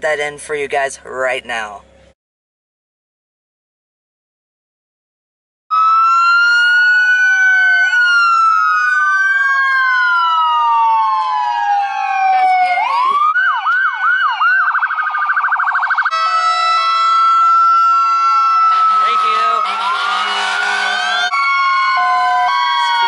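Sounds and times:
emergency sirens wailing: 5.7s - 23.0s.

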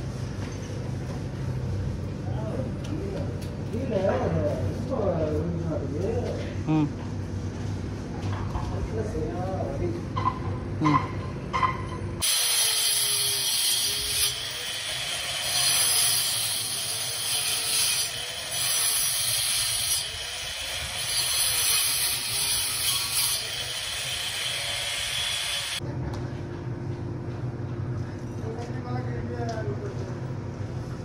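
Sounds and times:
angle grinder cutting into wall: 12.2s - 25.8s.

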